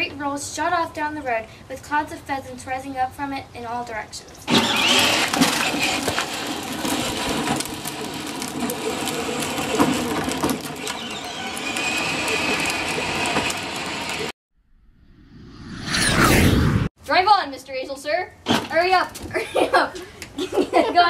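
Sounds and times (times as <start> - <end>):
toy car electric motor humming: 4.5 - 14.3.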